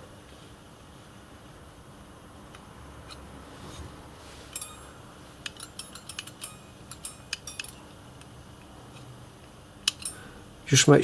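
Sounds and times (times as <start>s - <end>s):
metallic latch clicks: 5.4s - 8.3s, 9.8s - 10.2s.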